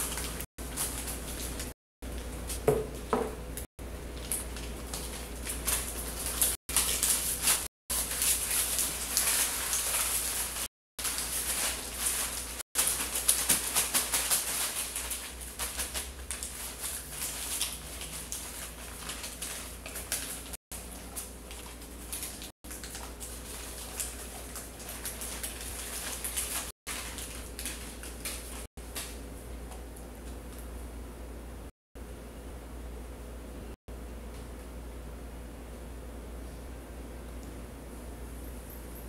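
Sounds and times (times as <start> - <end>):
sticky paper crinkling: 0.0 - 2.6, 4.1 - 29.2.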